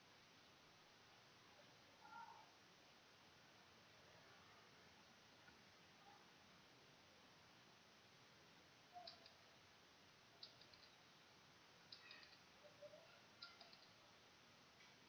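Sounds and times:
faint quick clicks: 9.0s - 9.4s, 10.4s - 11.0s, 11.9s - 12.5s, 13.4s - 14.0s.

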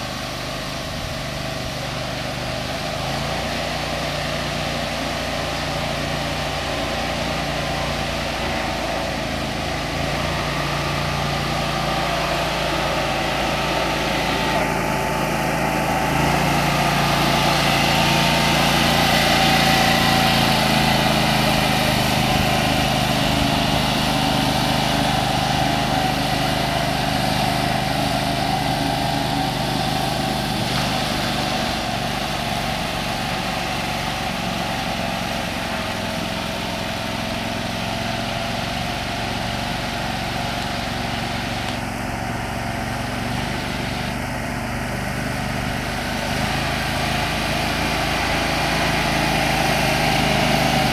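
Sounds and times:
small engine running: 0.0s - 50.9s
wheels churning water: 0.0s - 50.9s.

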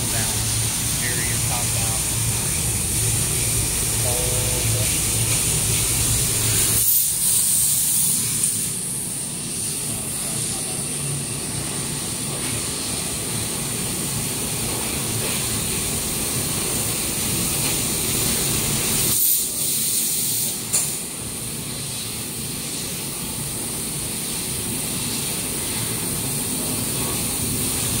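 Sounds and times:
laser cutter hiss and whistle: 0.0s - 11.0s, 16.7s - 21.0s.

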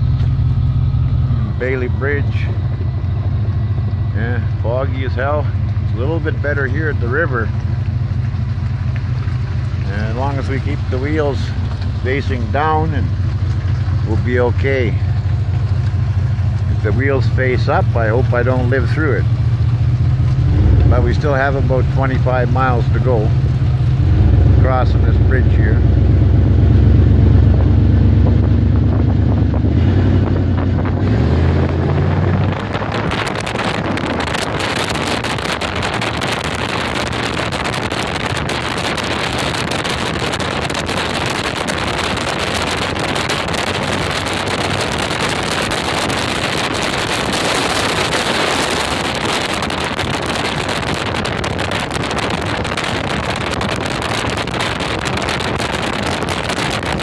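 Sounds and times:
car tyres on slushy road: 0.0s - 57.0s
wind buffeting microphone: 9.2s - 57.0s.

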